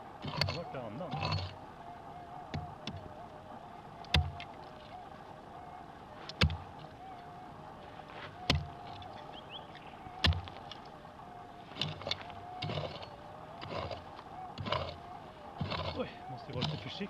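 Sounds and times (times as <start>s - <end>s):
dirt scraping and crumbling: 0.0s - 17.0s
pick striking stony soil: 10.2s - 10.6s.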